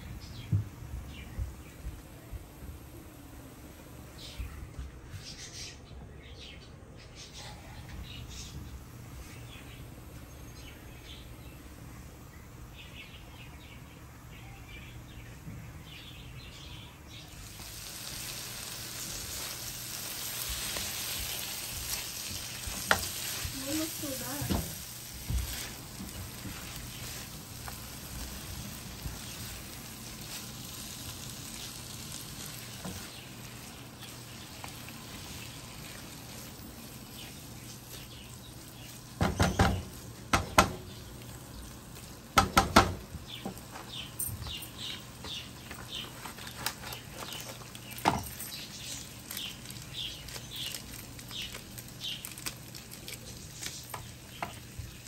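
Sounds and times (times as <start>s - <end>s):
crackles: 17.1s - 55.0s
food sizzling in a frying pan: 17.2s - 55.0s
spatula knocking on pan: 39.2s - 40.9s, 42.4s - 43.6s.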